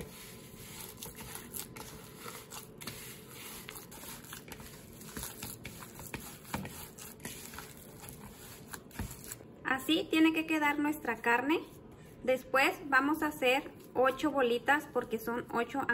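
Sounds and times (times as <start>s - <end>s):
hands kneading wet ground meat: 0.0s - 9.5s.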